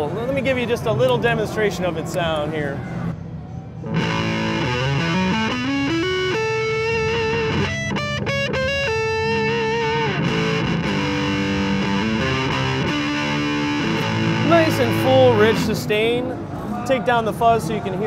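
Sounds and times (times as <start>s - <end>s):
fuzz electric guitar lead: 3.8s - 16.3s.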